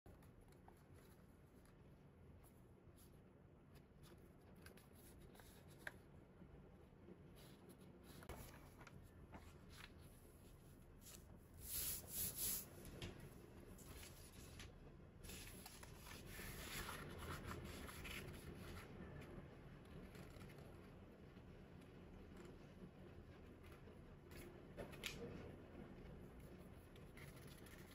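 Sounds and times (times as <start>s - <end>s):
paper rustling while folded: 7.4s - 12.9s, 13.7s - 19.3s, 26.4s - 27.9s.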